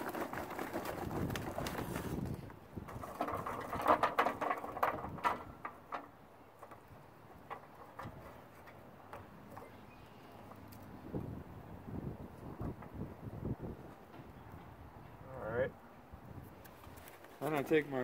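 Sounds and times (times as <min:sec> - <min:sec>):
charcoal briquettes clattering: 0:00.0 - 0:09.7.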